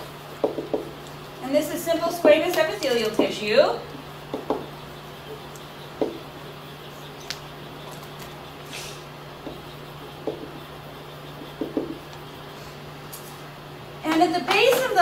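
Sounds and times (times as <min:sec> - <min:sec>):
steady low hum: 0:00.0 - 0:15.0
marker squeaking on whiteboard: 0:07.0 - 0:12.2.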